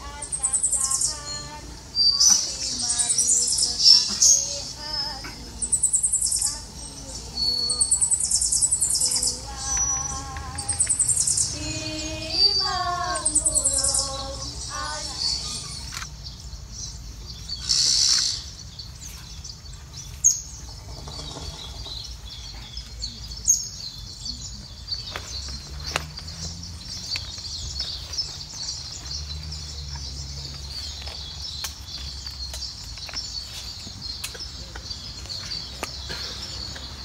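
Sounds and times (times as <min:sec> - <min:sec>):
high-pitched background chorus: 0:00.0 - 0:16.1
birds chirping and calling: 0:00.0 - 0:37.0.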